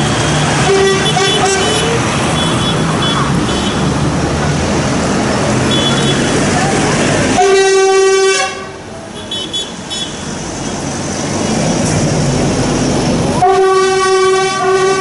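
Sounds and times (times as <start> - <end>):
diesel tractor engines: 0.0 - 15.0
tractor horn tooting: 0.6 - 3.8, 7.4 - 10.2, 13.4 - 15.0.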